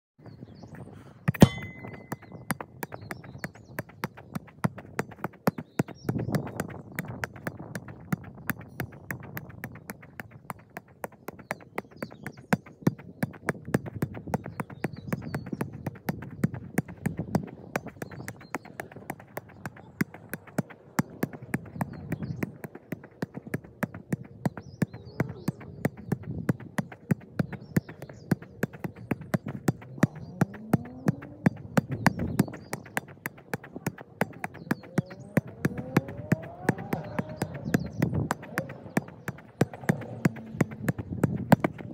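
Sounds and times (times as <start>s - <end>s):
football thuds off a foot: 1.3s - 2.3s.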